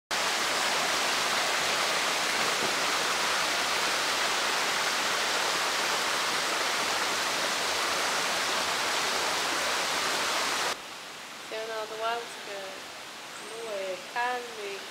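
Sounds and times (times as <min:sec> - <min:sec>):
water rushing over rocks: 0:00.1 - 0:11.4.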